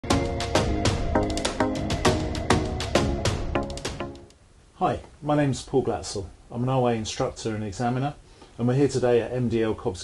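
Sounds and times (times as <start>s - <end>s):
intro music with sharp chord hits: 0.0s - 4.4s.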